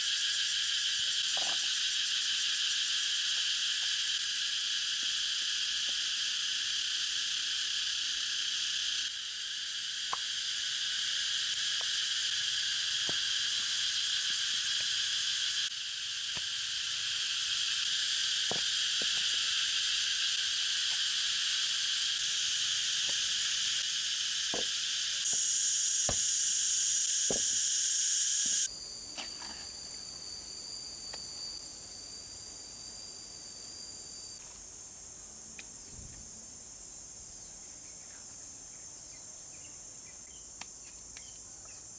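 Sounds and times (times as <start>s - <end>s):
insects buzzing and trilling: 0.0s - 41.9s.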